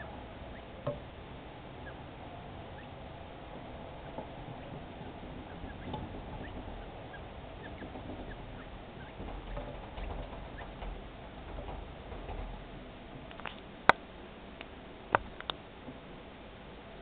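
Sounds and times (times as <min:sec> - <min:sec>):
chicks peeping: 0:00.0 - 0:01.0, 0:01.7 - 0:12.2.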